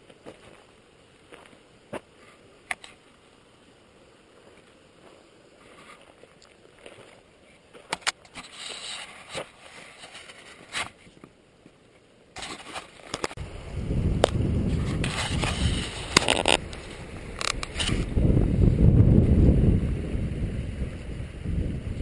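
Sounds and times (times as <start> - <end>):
sharp clicks and scrapes: 7.9 - 11.3, 12.4 - 13.4, 14.2 - 18.1
wind buffeting microphone: 13.4 - 22.0.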